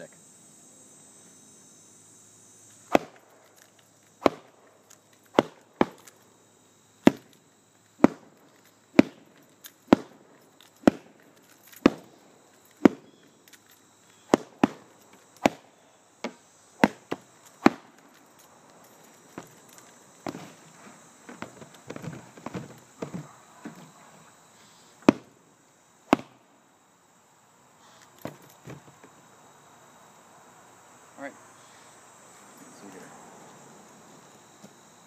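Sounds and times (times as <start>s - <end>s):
stick smacking punching bag: 2.9s - 3.2s, 4.2s - 4.5s, 14.3s - 14.8s, 15.4s - 17.9s.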